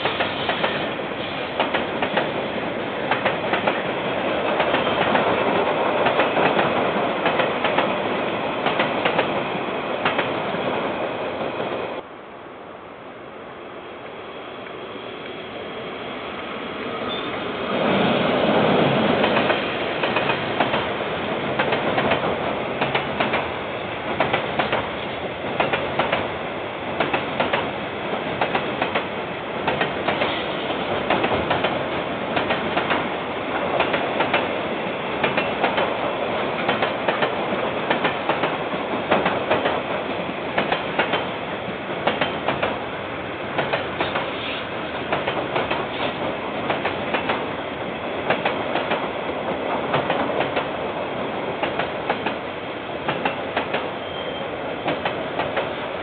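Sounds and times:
train rumble: 0:00.0 - 0:56.0
wheels clicking over rail joints: 0:27.0 - 0:31.8, 0:32.4 - 0:34.5, 0:35.2 - 0:36.0, 0:36.6 - 0:40.0, 0:40.6 - 0:41.3, 0:41.9 - 0:42.8, 0:43.5 - 0:47.5, 0:48.2 - 0:49.1.

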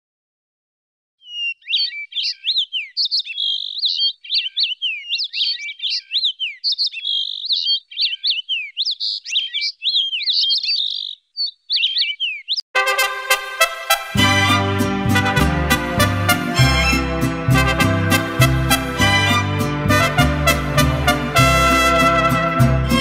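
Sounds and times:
songbird singing: 0:01.2 - 0:12.7
instrumental music: 0:12.8 - 0:23.0.

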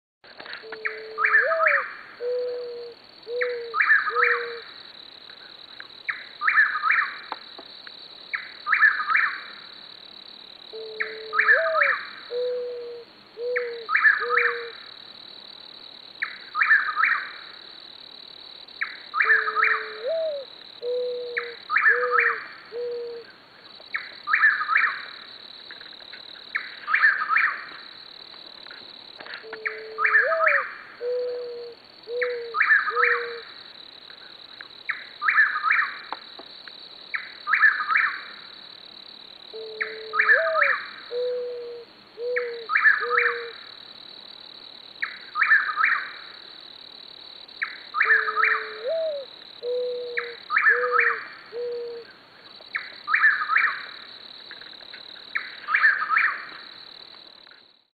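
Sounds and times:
crickets chirping: 0:00.2 - 0:57.9
dove cooing: 0:00.6 - 0:04.6, 0:10.7 - 0:14.8, 0:19.2 - 0:23.3, 0:29.4 - 0:33.4, 0:39.5 - 0:43.6, 0:48.0 - 0:52.1.

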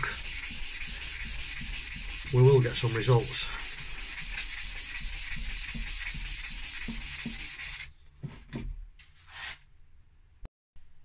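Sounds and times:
axe head rasping on sandpaper: 0:00.0 - 0:07.9.

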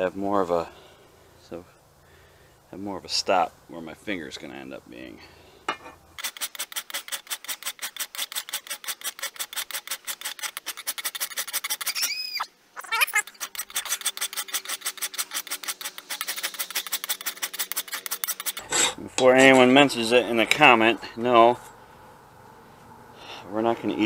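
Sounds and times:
hand file rasping on steel: 0:06.2 - 0:12.0, 0:13.2 - 0:19.0.

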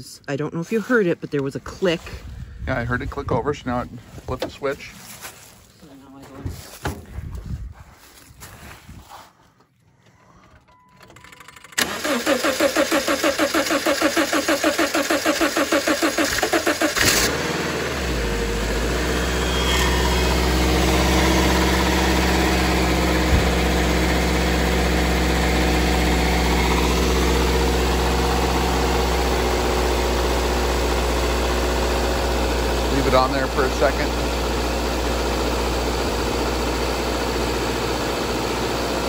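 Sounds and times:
car engine cranking: 0:09.8 - 0:39.0
car engine idling: 0:10.1 - 0:39.0.

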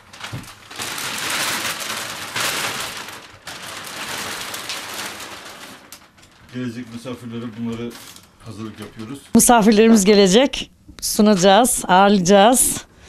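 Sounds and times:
plastic sheet crinkling: 0:00.0 - 0:09.4.

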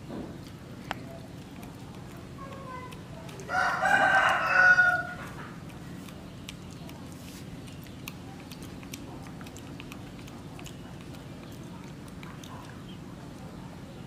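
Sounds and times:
monkey chewing with mouth smacks: 0:00.0 - 0:13.8
low background hum: 0:00.0 - 0:14.0.

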